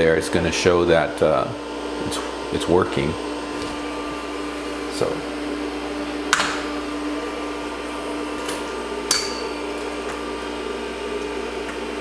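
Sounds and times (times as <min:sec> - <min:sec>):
computer fan and hard drive hum: 0:00.0 - 0:12.0.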